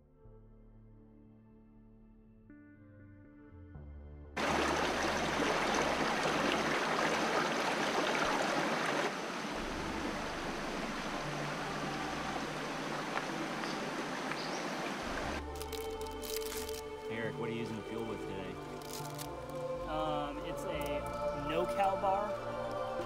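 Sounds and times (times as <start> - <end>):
creek rushing over rocks: 4.4 - 15.6.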